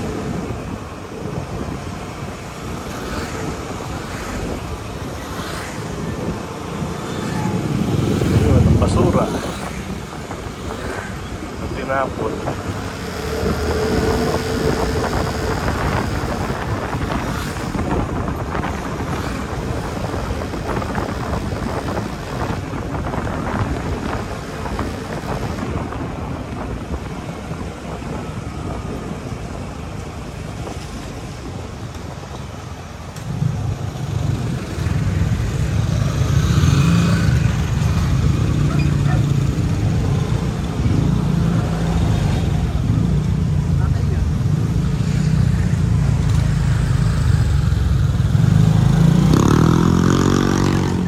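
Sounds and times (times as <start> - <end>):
wind buffeting microphone: 0.0 - 51.0
passing motorcycles engine drone: 2.9 - 26.1, 44.7 - 51.0.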